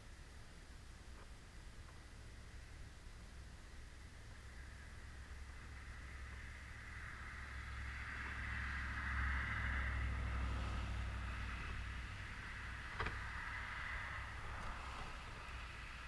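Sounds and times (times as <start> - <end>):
distant vehicle passing: 4.4 - 16.0.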